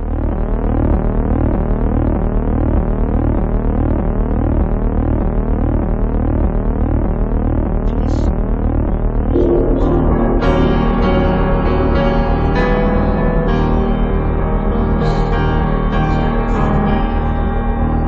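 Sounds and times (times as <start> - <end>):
synthesizer drone: 0.0 - 18.0
repeating rising tone sweeps: 9.3 - 12.0.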